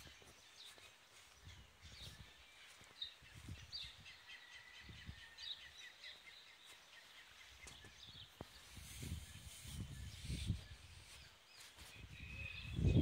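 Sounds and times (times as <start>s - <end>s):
high bird chirps: 0.0s - 13.0s
low wind rumble: 12.0s - 13.0s.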